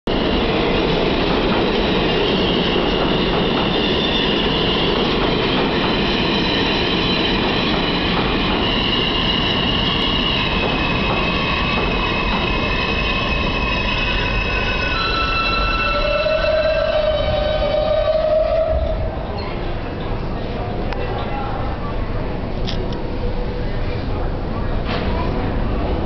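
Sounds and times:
subway train wheels rumbling: 0.1s - 26.0s
high-pitched wheel squeal: 8.7s - 19.1s.

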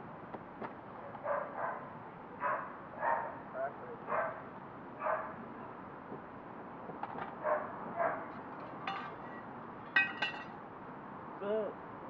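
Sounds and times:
dog barking: 1.0s - 3.4s, 4.1s - 4.4s, 5.0s - 5.4s, 7.4s - 8.3s.

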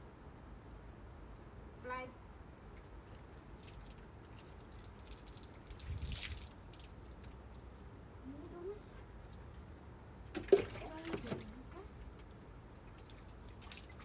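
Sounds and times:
water splashing on paving: 3.1s - 9.6s, 10.2s - 14.0s
water pouring over dog: 3.3s - 7.9s, 12.9s - 14.0s.

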